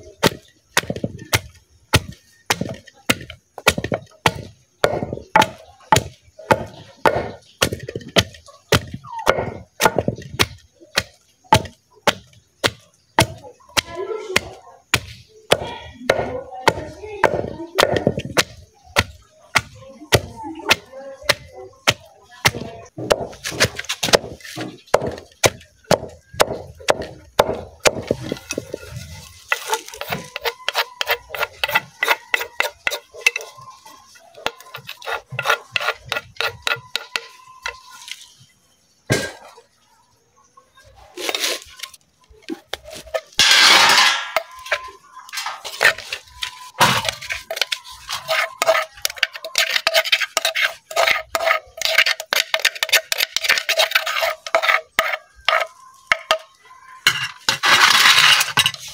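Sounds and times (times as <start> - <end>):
wooden pestle pounding in mortar: 0.2 - 28.8, 29.5 - 33.5, 34.4 - 37.8.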